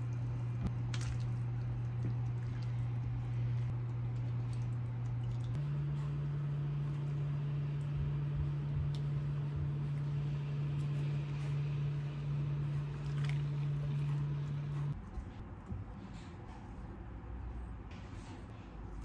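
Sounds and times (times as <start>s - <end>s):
broth bubbling: 0.0s - 5.6s
induction cooktop hum: 0.0s - 19.0s.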